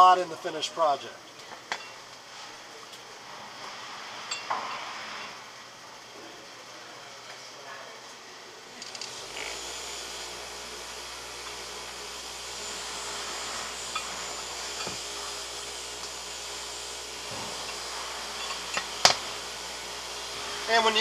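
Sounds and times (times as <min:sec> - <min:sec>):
electric motor whirring: 0:08.8 - 0:21.0.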